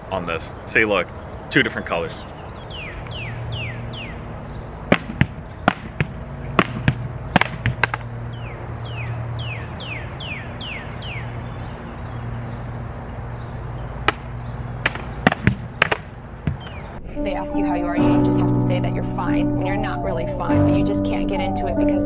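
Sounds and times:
bird whistling song: 2.2s - 4.6s, 8.4s - 12.2s, 16.6s - 17.0s
tennis ball knocks: 14.0s - 16.9s.

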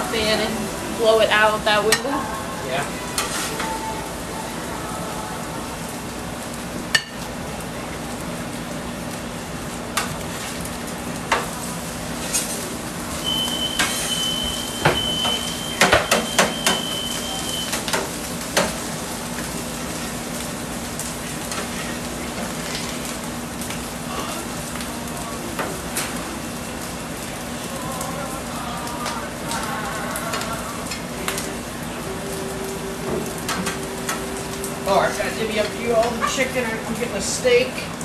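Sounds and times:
food sizzling on a griddle: 0.0s - 38.0s
metal spatulas scraping and clacking: 3.2s - 3.7s
low steady hum: 10.7s - 38.0s.

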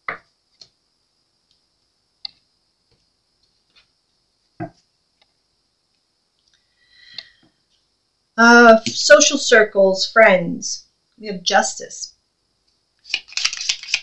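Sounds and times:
cards clicking and tapping: 13.0s - 14.0s.

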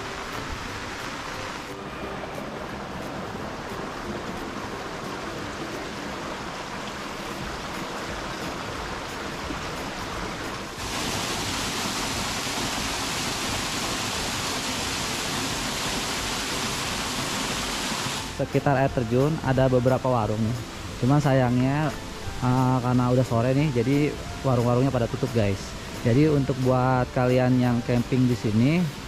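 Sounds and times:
stream flowing over stones: 0.0s - 29.0s
waterfall splashing into pool: 2.6s - 18.4s.

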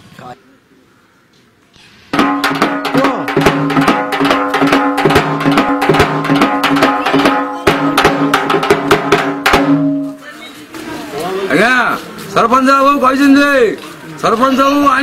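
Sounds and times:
metal gong beaten rapidly: 2.2s - 10.2s.

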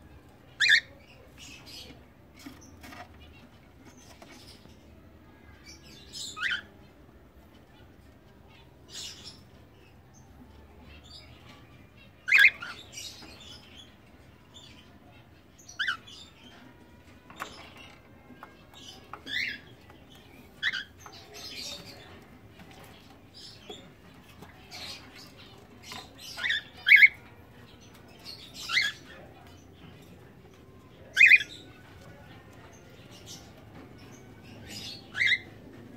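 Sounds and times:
cockatiels chirping: 0.6s - 3.4s, 6.2s - 6.7s, 12.2s - 14.0s, 15.7s - 16.7s, 17.3s - 30.3s, 30.9s - 35.8s.

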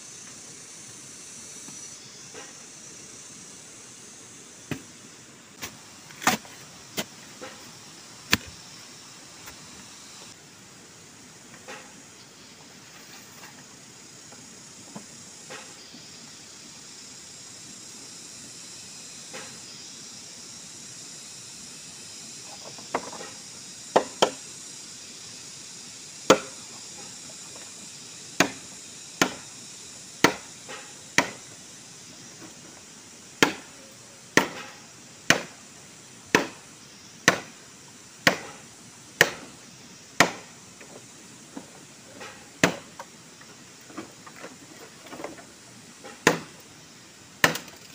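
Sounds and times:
steady high hiss: 0.0s - 47.9s
machete chopping bamboo: 4.7s - 4.9s, 5.6s - 7.6s, 8.3s - 8.6s, 24.0s - 24.4s, 26.3s - 26.6s, 28.4s - 29.5s, 30.2s - 31.5s, 33.4s - 33.7s, 34.3s - 35.6s, 36.3s - 37.6s, 38.2s - 38.6s, 39.2s - 39.5s, 40.2s - 40.5s, 42.2s - 43.0s, 46.1s - 46.6s, 47.4s - 47.8s.

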